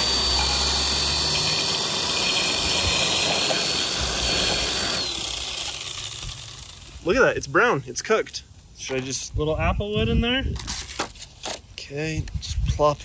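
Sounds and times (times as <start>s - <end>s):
chainsaw cutting with whine: 0.0s - 7.3s.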